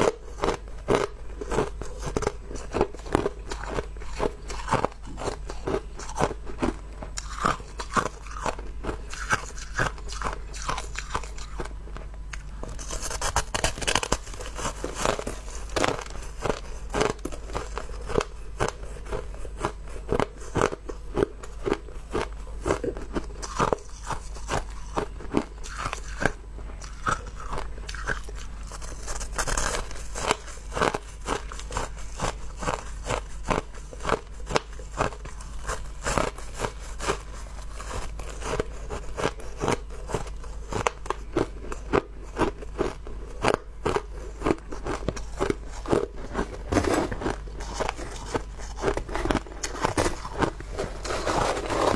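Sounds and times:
chewing crushed ice crunches: 0:00.0 - 0:51.9
steady low hum: 0:00.0 - 0:51.9.

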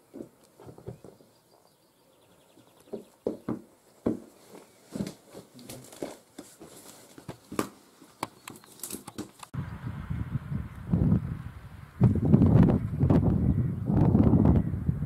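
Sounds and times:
knocks and scrapes of handling: 0:00.1 - 0:01.4, 0:02.9 - 0:09.5.

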